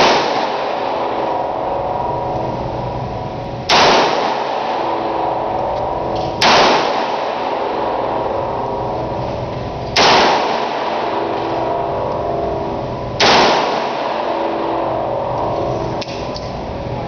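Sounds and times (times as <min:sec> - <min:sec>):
handgun shots with echo: 0:00.0 - 0:01.4, 0:03.7 - 0:08.0, 0:09.9 - 0:11.8, 0:13.2 - 0:14.8
steady background noise: 0:00.0 - 0:17.0.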